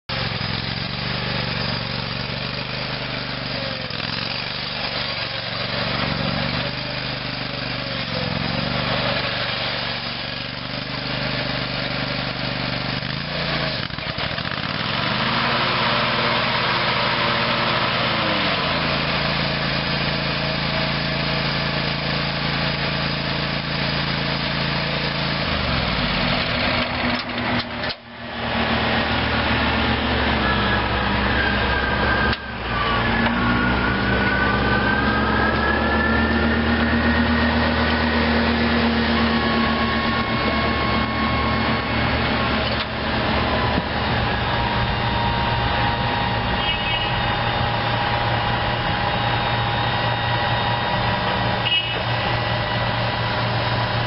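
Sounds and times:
lawn mower engine running: 0.1 - 54.0.

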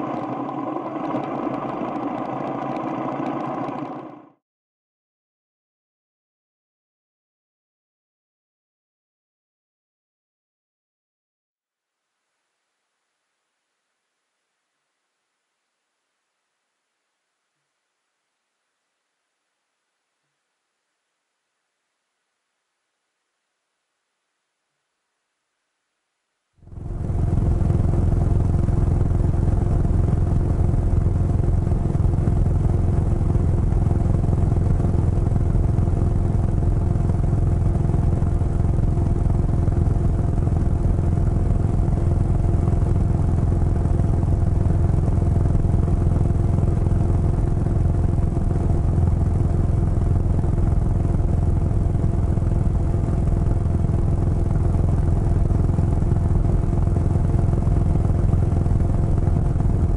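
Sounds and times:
motorcycle engine cruising: 26.6 - 59.9.

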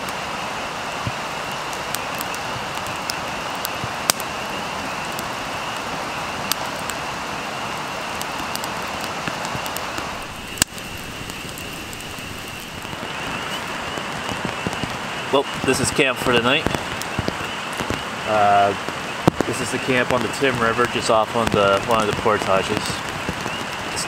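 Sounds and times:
campfire crackling and popping: 0.0 - 24.0
rain hissing: 0.0 - 24.0.

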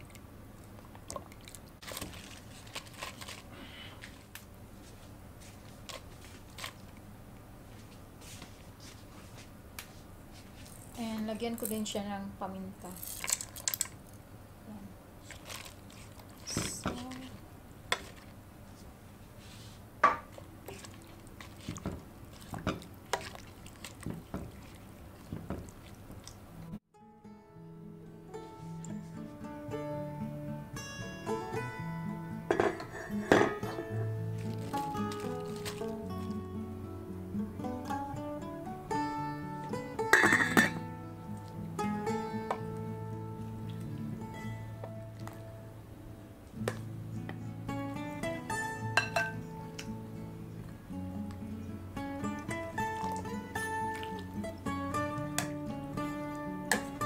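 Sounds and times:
broth and leaves sloshing: 1.3 - 3.5, 15.2 - 17.4, 20.6 - 26.8, 34.2 - 36.3
leaves crunching and rustling: 34.3 - 36.3
spoon knocking against pot: 49.0 - 49.4.

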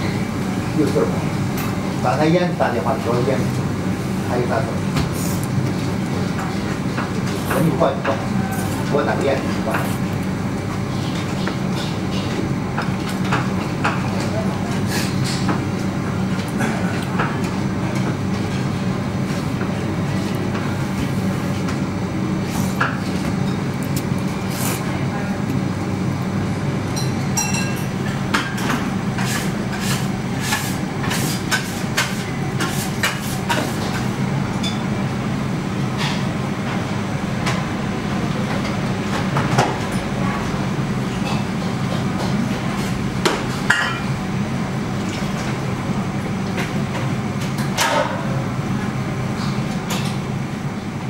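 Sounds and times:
low machine hum: 0.0 - 51.0
tableware clinking: 27.0 - 27.9.

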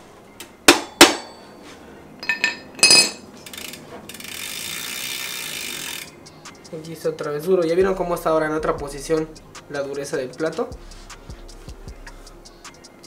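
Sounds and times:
ringing metallic clinks: 2.2 - 3.2
chain hissing over sprocket: 3.4 - 6.8.

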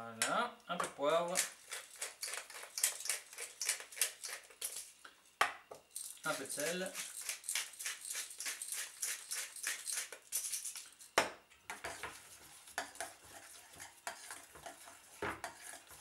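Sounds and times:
salt mill grinding: 1.3 - 4.9, 5.9 - 11.1
spoon scraping metal bowl: 1.3 - 4.9, 11.8 - 16.0.

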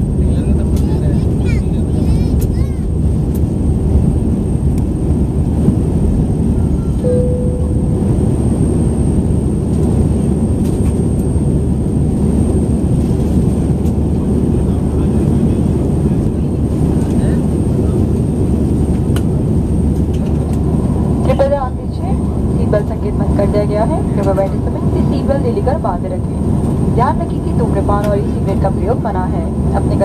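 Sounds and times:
airliner cabin rumble: 0.0 - 30.0
short chime: 6.8 - 8.1.

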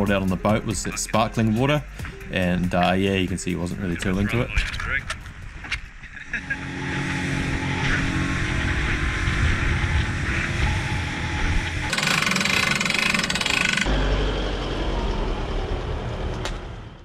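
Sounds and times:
boat speeding over water: 6.4 - 11.9
outboard motor running: 6.4 - 13.9
hand winch ratcheting clicks: 11.9 - 13.9.

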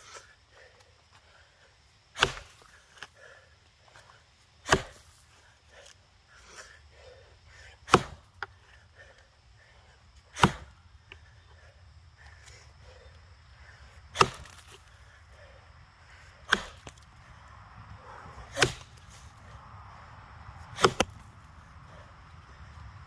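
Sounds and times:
axe chopping log: 2.1 - 3.1, 4.6 - 5.3, 7.8 - 8.6, 10.3 - 10.8, 14.1 - 14.9, 16.4 - 17.0, 18.4 - 19.2, 20.7 - 21.3.

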